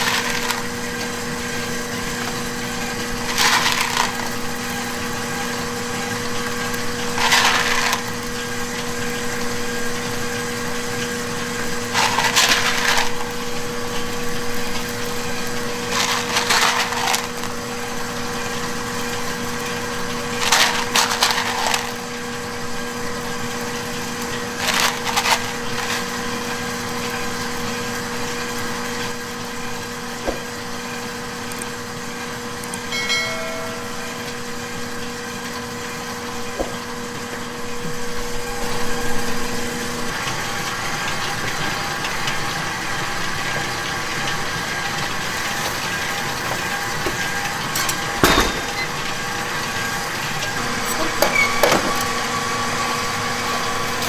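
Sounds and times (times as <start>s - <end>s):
chocolate chips rattling: 0.0s - 1.1s, 3.0s - 4.8s, 7.0s - 8.2s, 11.9s - 13.6s, 15.6s - 18.0s, 20.2s - 22.4s, 24.3s - 26.7s
machine hum: 0.0s - 54.0s.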